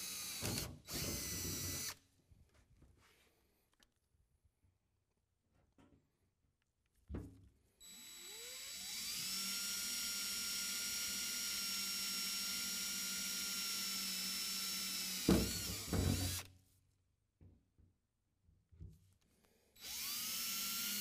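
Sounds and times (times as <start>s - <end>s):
cordless drill whining: 0.0s - 2.0s, 7.8s - 16.5s, 19.8s - 21.0s.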